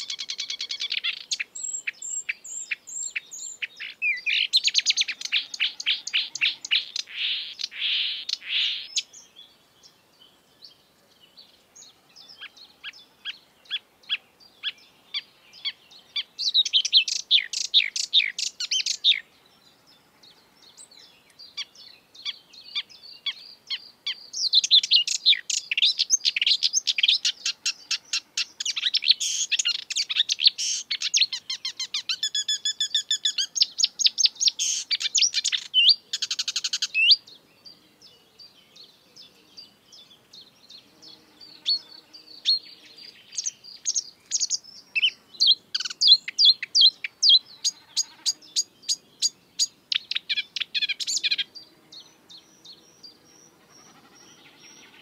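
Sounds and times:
warbler singing: 0.0s - 55.0s.

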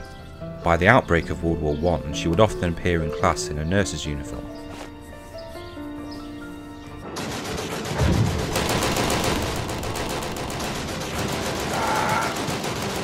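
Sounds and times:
background music: 0.0s - 13.0s
machine-gun fire: 7.1s - 13.0s.

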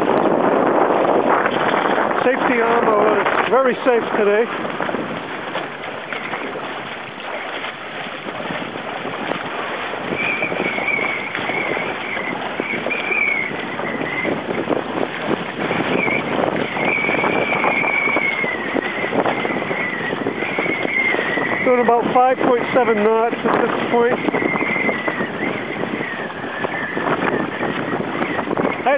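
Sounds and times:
water splashing against hull: 0.0s - 28.9s
wind on microphone: 0.0s - 28.9s
wavering high whistle: 10.1s - 14.3s, 15.9s - 18.6s.

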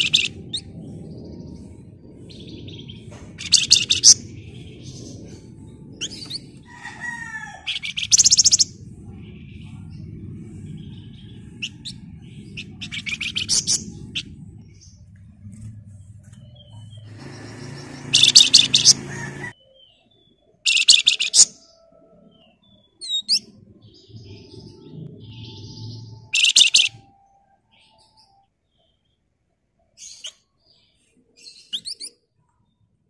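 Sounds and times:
bird harsh chatter: 0.0s - 0.8s, 3.3s - 8.7s, 11.2s - 14.4s, 17.0s - 19.6s
bird whistled notes: 20.7s - 21.8s, 25.3s - 28.4s.

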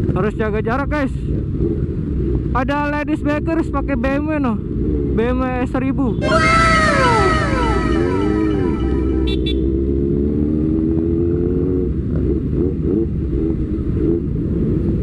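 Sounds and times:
wind and road rumble: 0.0s - 6.2s, 9.3s - 15.0s
falling whistle-like tone: 6.2s - 9.4s.

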